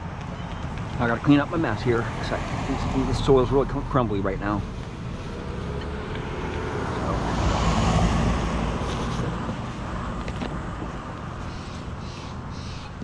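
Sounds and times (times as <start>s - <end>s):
car passing: 0.8s - 13.0s.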